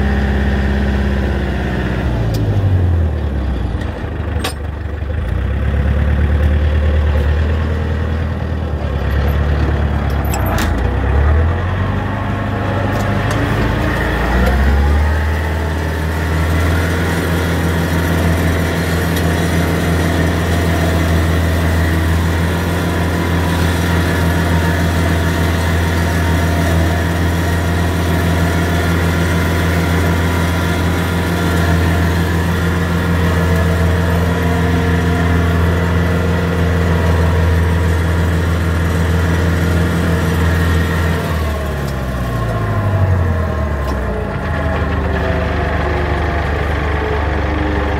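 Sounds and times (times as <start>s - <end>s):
tractor engine running under load: 0.0s - 47.9s.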